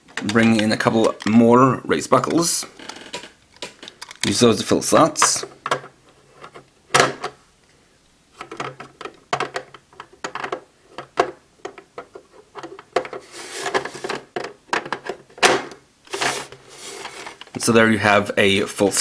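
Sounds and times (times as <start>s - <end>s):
plastic buckles clicking: 2.2s - 4.4s.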